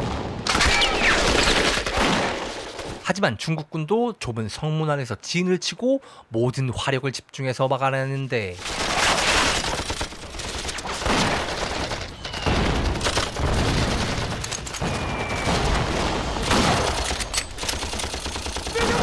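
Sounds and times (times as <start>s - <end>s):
continuous rifle and machine-gun fire: 8.6s - 19.0s.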